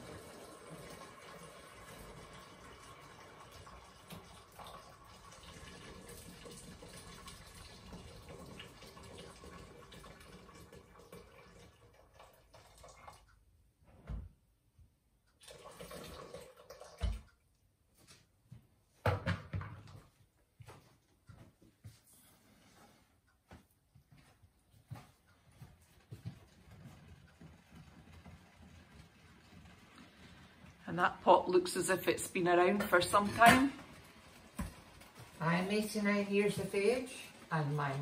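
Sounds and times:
water pouring into a pot: 0.0 - 13.3, 15.4 - 17.3, 27.5 - 38.0.

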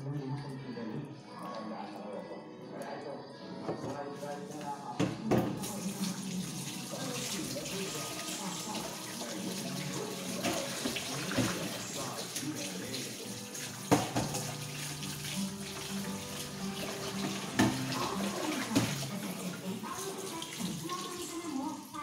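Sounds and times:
tap running into a sink: 5.0 - 19.2.

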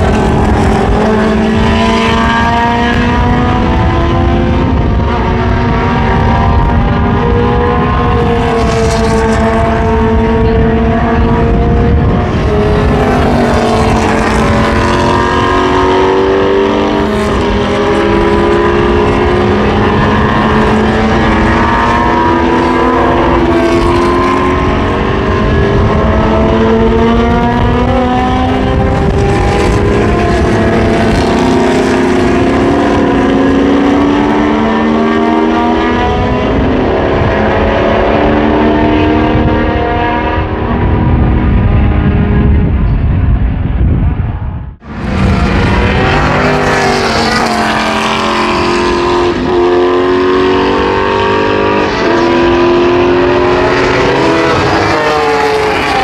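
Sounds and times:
racing cars passing: 0.0 - 56.0.

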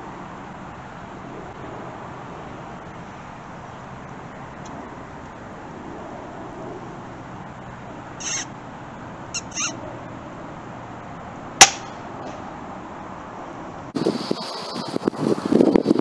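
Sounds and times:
short high squeaks: 8.2 - 8.5, 9.3 - 9.8
air rifle shot: 11.6 - 12.0.

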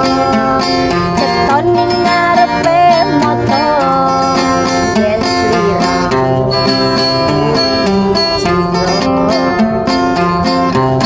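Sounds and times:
woman singing pop song: 0.0 - 6.7
acoustic guitar: 0.0 - 11.0.

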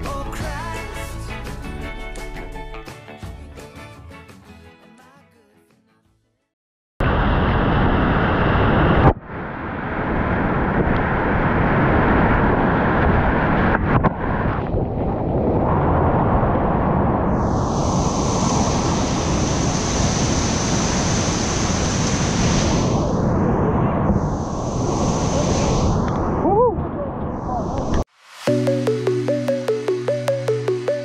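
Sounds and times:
wind noise on microphone: 7.1 - 28.0.

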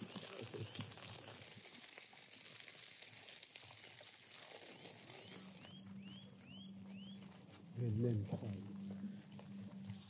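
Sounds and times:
fat sizzling on hot charcoal: 0.0 - 10.0
bird chirping: 4.7 - 7.4.

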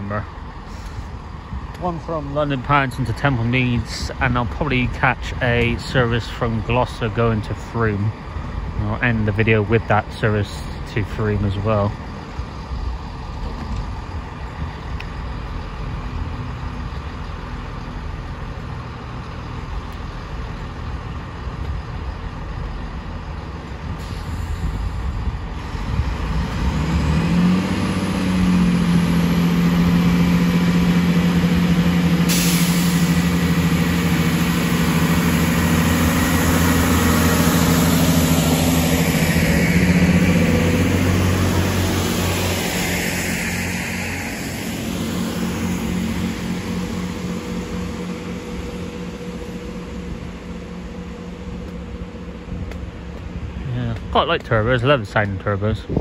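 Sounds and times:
diesel train engine: 0.0 - 56.0
air hiss: 32.2 - 33.3.

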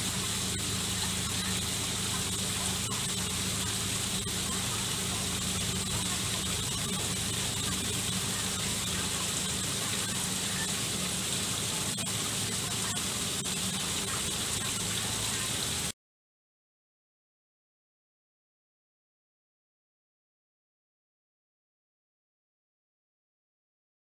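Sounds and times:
low steady hum: 0.0 - 15.9
small waterfall splashing into pond: 0.0 - 15.9.

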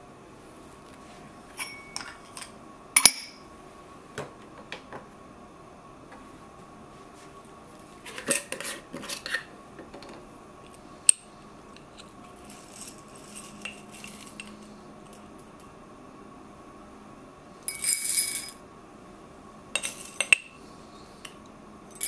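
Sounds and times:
glass jar clinking: 1.6 - 3.4, 17.7 - 18.6, 19.8 - 20.5
metal spoon scooping coffee beans: 11.8 - 15.2, 19.8 - 20.6.

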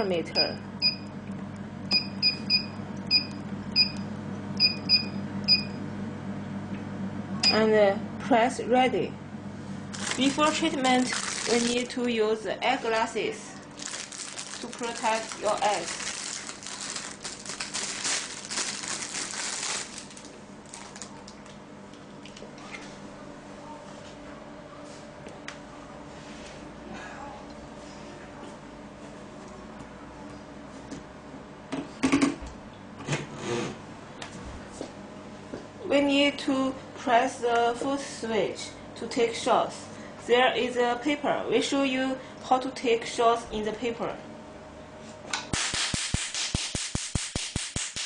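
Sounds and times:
steady low hum: 0.0 - 46.6
plastic bag crinkling: 9.9 - 12.2, 13.5 - 21.6.

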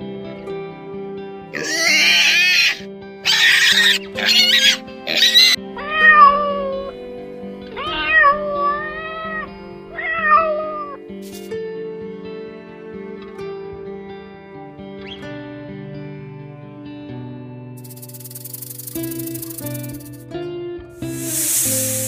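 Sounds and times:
soft guitar music: 0.0 - 22.0
cats screeching: 1.6 - 6.9, 7.7 - 11.0
cats yowling: 1.6 - 6.9, 7.7 - 11.0.

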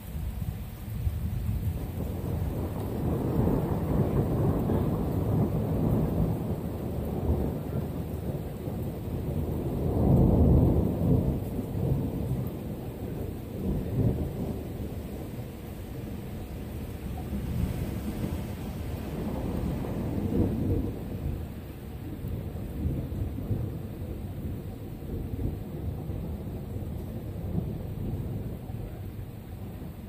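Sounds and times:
thunder rumbling: 0.0 - 30.0.

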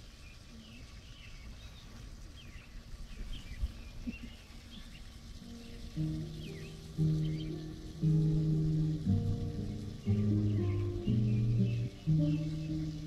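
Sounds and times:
small birds chirping: 0.0 - 13.0
music with low held notes: 5.4 - 13.0.

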